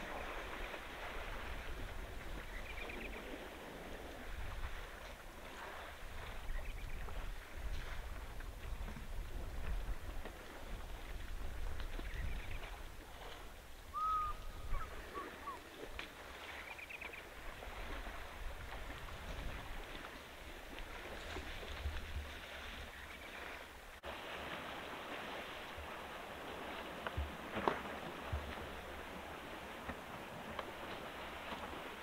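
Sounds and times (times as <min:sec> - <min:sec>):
elephants splashing in water: 0:00.0 - 0:32.0
bird whistle: 0:13.9 - 0:15.6
birds twittering: 0:13.9 - 0:15.7.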